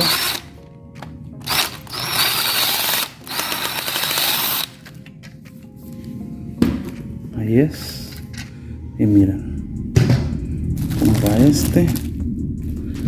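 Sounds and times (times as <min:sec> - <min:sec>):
cordless drill whining: 0:00.0 - 0:00.5, 0:01.4 - 0:04.8.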